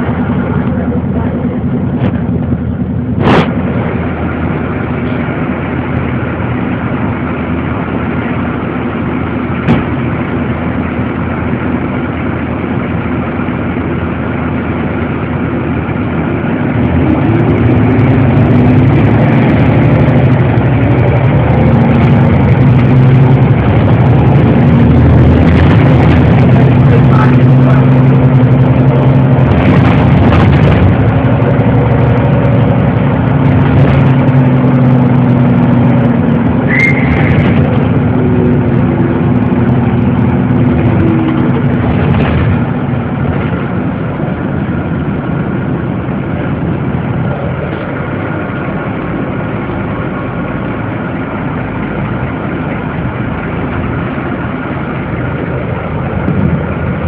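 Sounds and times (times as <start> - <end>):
bus engine droning: 0.0 - 57.0
road noise: 0.0 - 57.0
brief high squeak: 36.7 - 37.5.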